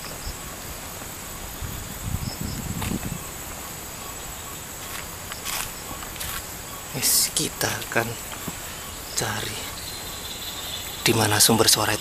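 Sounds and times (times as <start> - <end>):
crickets chirring: 0.0 - 12.0
footsteps on dirt path: 2.4 - 3.7, 4.8 - 6.6, 7.8 - 8.7.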